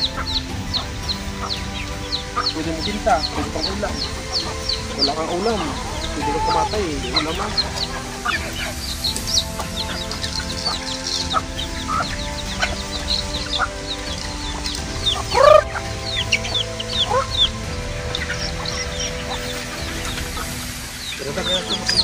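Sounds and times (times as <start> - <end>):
chicken squawk: 0.0 - 20.7
chickens clucking: 0.0 - 22.0
high chirps: 0.0 - 22.0
soft background music: 0.0 - 22.0.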